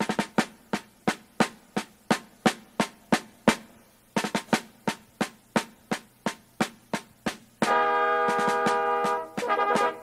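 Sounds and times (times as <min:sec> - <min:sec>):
snare drum beating: 0:00.0 - 0:10.0.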